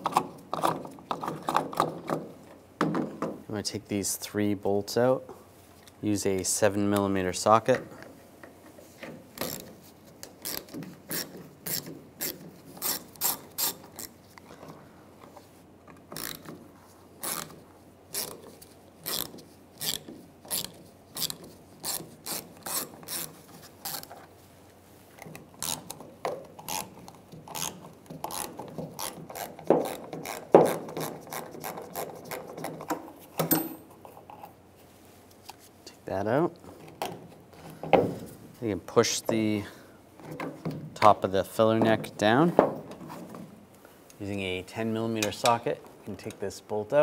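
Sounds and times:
socket ratchet clicking: 16.1 - 16.5.

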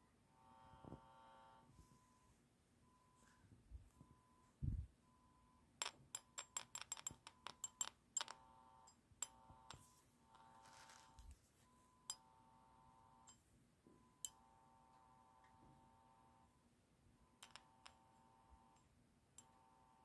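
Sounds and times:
faint electronic beep: 1.7 - 5.7, 9.8 - 14.4.

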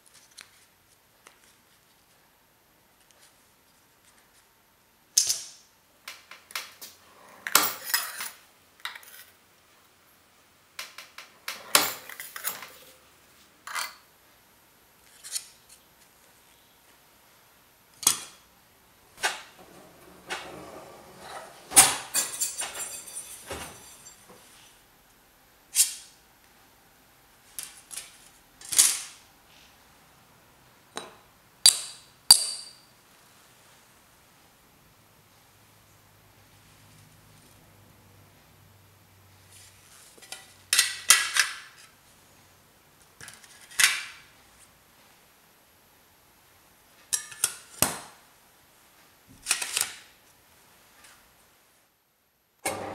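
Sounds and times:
bench shear cutting sheet steel: 52.6 - 52.9.

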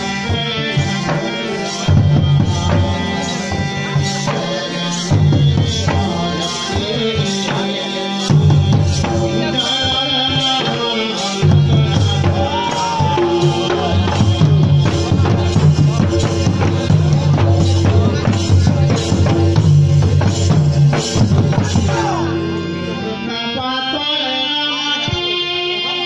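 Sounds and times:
hand drums beating: 0.0 - 22.7
heavy low bass: 11.4 - 23.2.

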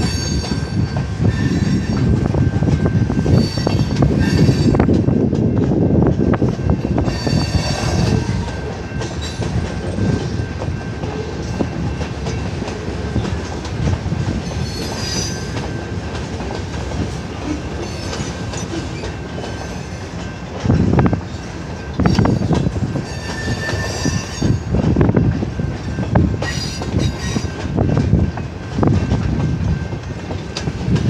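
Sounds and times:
train wheels rumbling on rails: 0.0 - 31.0
high-pitched wheel squeal: 23.1 - 24.6.

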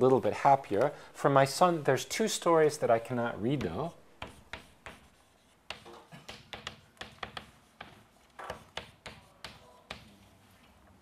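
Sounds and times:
chalk writing on chalkboard: 3.6 - 10.3.

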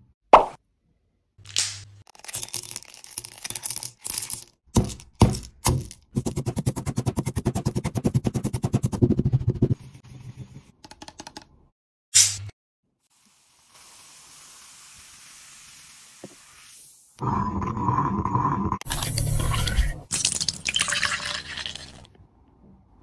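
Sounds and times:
pestle crushing candies in mortar: 2.1 - 9.2.

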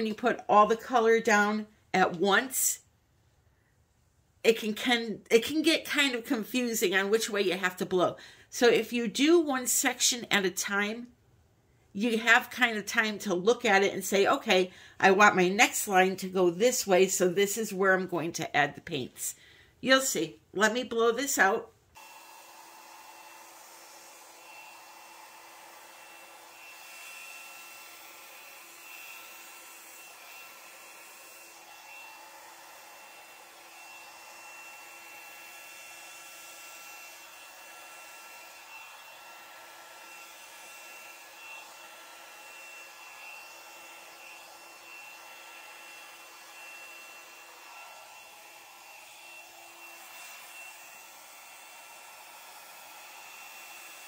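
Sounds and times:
blow dryer running: 21.4 - 54.0.

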